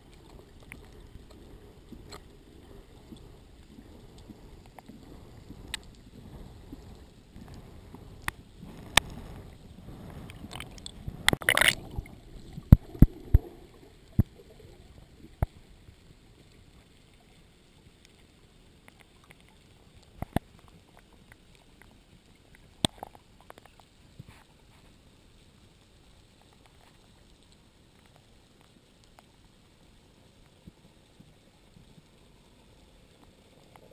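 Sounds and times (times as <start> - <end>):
rush of water noise: 0.0 - 25.6
underwater rumble: 0.0 - 33.9
underwater clicks and knocks: 10.0 - 13.5, 14.1 - 14.4, 20.1 - 21.1, 22.8 - 23.9.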